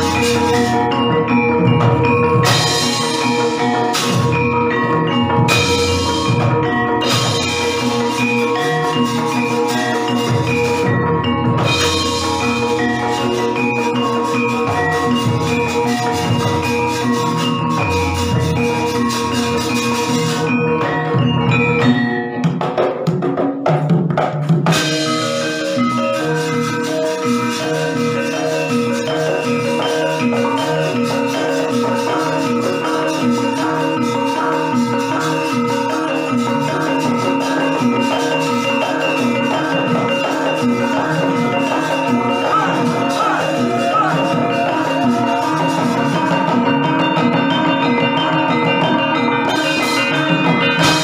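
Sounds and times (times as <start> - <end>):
metallophones ringing: 0.0 - 23.1, 24.6 - 51.0
drum strokes and knocks: 0.0 - 51.0
gamelan music: 0.0 - 51.0.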